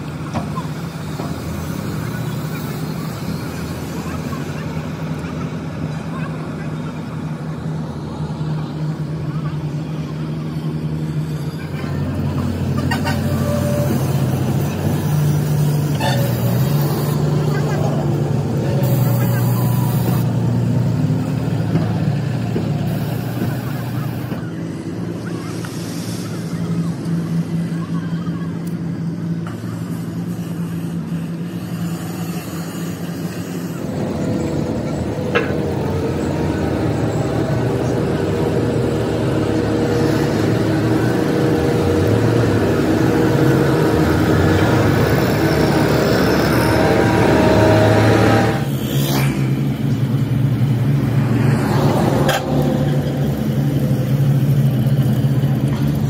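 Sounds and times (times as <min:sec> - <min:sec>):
road roller diesel engines running: 0:00.0 - 0:56.0.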